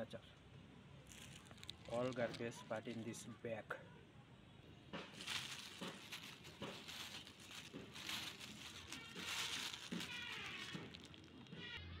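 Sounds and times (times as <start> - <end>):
plastic bag crinkling: 1.1 - 3.0, 5.1 - 11.6.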